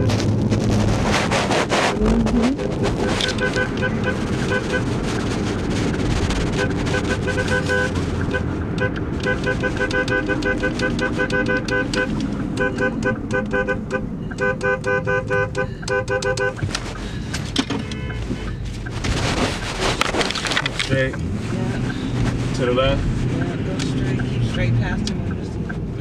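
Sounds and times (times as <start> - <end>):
moving car drone: 0.0 - 26.0
car horn tooting: 2.9 - 5.1, 6.4 - 16.7, 17.6 - 18.6.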